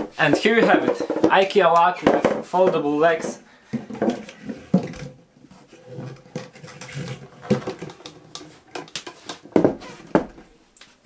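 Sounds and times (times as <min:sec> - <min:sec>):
table knocks and clatter: 0:00.0 - 0:05.2, 0:05.9 - 0:10.5.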